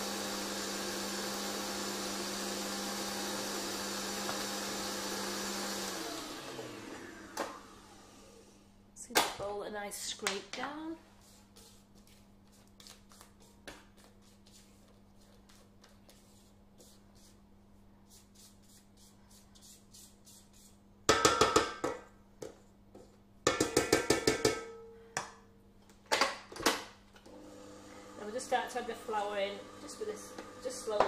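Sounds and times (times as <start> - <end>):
spatula knocking on metal bowl: 21.1 - 22.0, 23.4 - 24.7.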